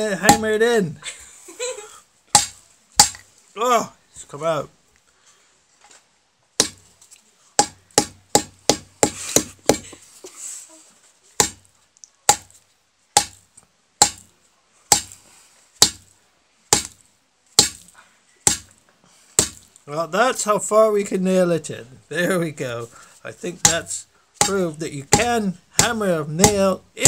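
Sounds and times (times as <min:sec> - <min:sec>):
baguette knocking nail into wood: 0:02.4 - 0:03.2, 0:13.2 - 0:13.4, 0:14.9 - 0:15.2, 0:16.7 - 0:17.0, 0:17.6 - 0:17.8, 0:18.5 - 0:18.7, 0:19.4 - 0:19.6, 0:24.4 - 0:26.6.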